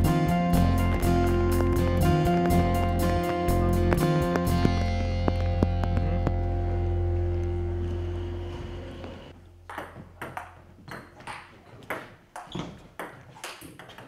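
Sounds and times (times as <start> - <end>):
background music: 0.0 - 9.6
table tennis ball clicking: 9.7 - 14.0.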